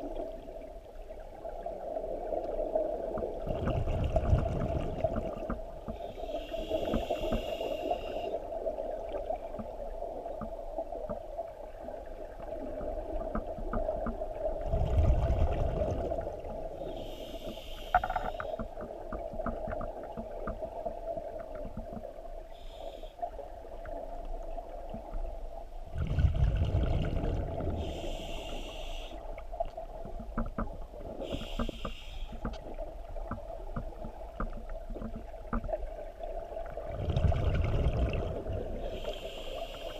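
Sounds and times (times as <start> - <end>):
exhaled bubbles rumbling: 0.0 - 7.6, 8.4 - 16.9, 23.5 - 39.2
diver breathing through regulator: 5.9 - 8.4, 16.8 - 18.7, 27.7 - 29.2, 31.2 - 32.6, 38.8 - 39.9.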